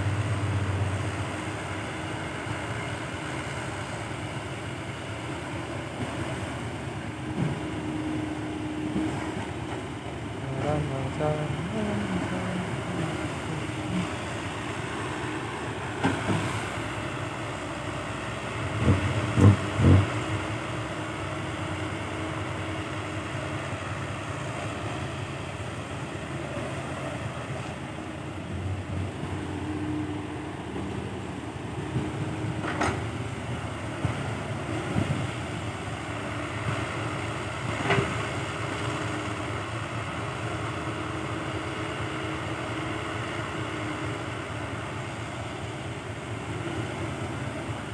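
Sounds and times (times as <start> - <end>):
excavator diesel engine running: 0.0 - 47.9
bucket and dirt clunks: 15.9 - 16.7, 18.8 - 20.1, 32.0 - 33.1.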